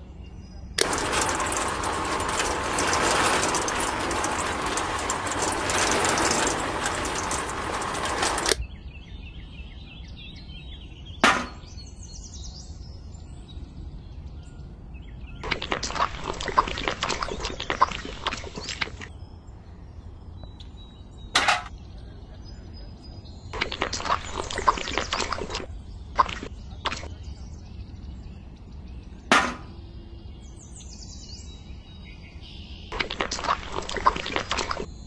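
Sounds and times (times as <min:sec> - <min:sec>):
toy mixer motor rushing: 0:00.8 - 0:08.6
sharp knock: 0:11.2 - 0:11.6
wet mix pouring into pail: 0:15.5 - 0:19.0, 0:33.0 - 0:34.9.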